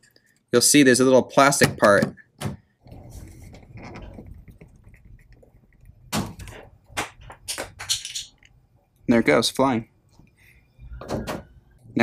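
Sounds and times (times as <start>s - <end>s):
plastic rubbing and scraping: 2.9s - 6.8s.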